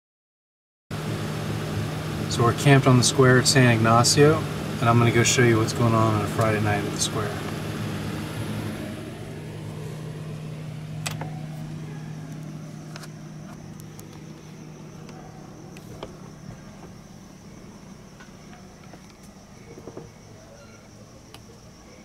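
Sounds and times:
low mechanical hum: 0.9 - 22.0
crickets trilling: 1.0 - 22.0
sharp clicks: 11.0 - 11.4.

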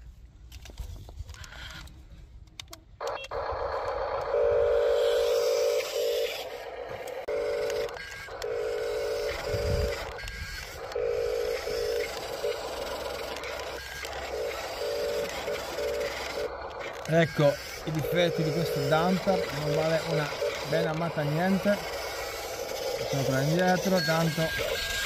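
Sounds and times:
toy electric motors whining: 1.3 - 2.0, 3.0 - 25.0
plastic gear rattle: 7.5 - 25.0.

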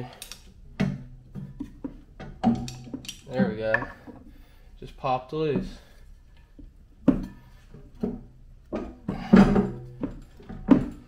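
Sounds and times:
metal clunks and knocks: 0.7 - 4.4, 6.6 - 11.0.

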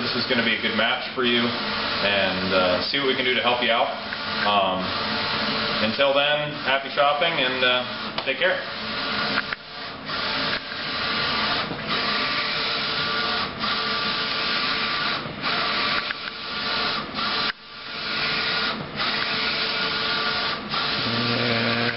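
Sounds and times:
printer carriage whirring: 0.0 - 21.9.

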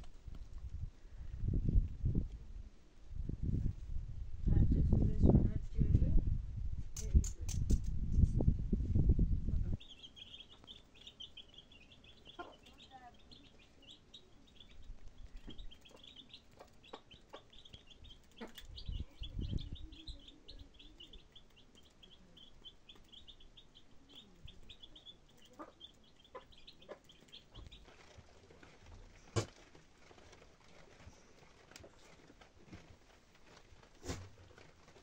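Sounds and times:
chicks peeping: 9.7 - 32.4.

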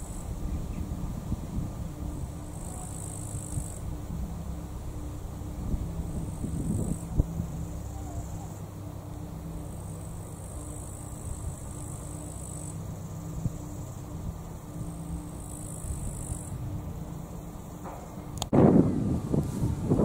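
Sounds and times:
high-pitched insect buzzing: 0.0 - 17.8
low outdoor rumble: 0.0 - 20.0.

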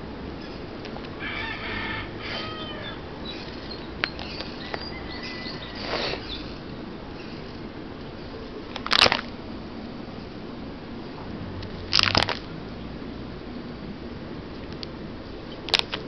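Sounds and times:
bird calling: 1.2 - 7.6
plastic sleeves crinkling: 8.6 - 9.4, 11.9 - 12.5.

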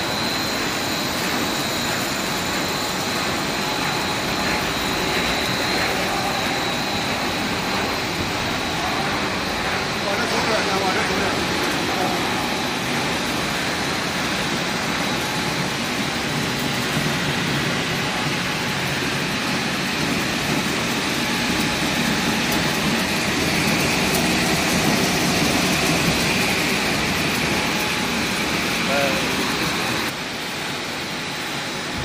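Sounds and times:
faint high whine: 0.0 - 30.1.

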